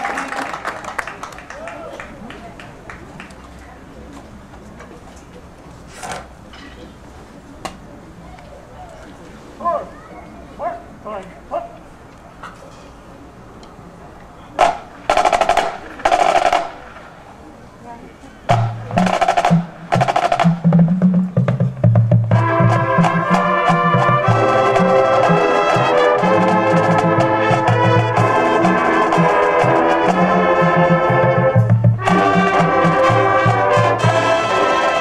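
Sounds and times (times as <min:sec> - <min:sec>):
drum line playing: 0:14.6 - 0:17.0, 0:18.5 - 0:35.0
bugle horn chords: 0:22.1 - 0:35.0.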